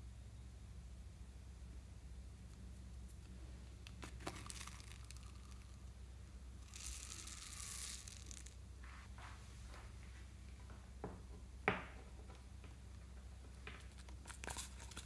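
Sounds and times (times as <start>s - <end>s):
foam beads pouring: 4.0s - 5.9s, 6.6s - 8.6s.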